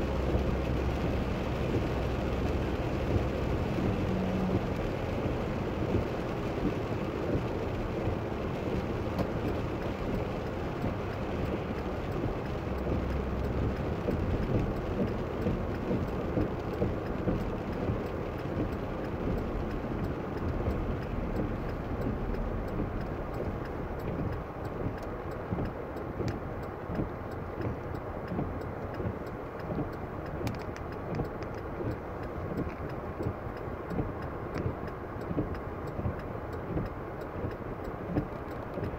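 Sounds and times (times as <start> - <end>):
car engine: 0.0 - 38.9
faint clicks: 4.5 - 38.9.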